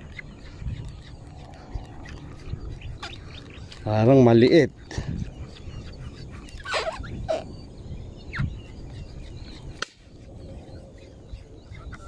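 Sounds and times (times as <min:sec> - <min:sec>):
faint outdoor background noise: 0:00.0 - 0:12.0.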